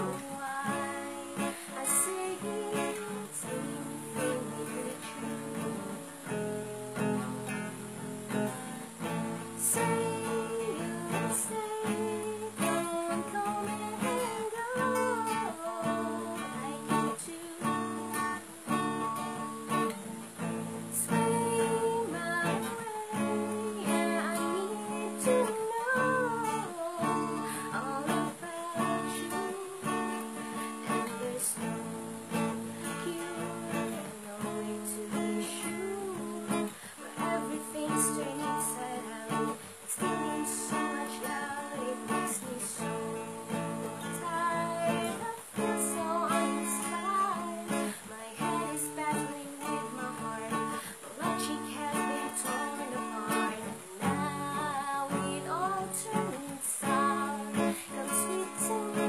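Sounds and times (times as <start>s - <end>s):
acoustic guitar: 0.0s - 59.0s
woman singing: 0.0s - 59.0s.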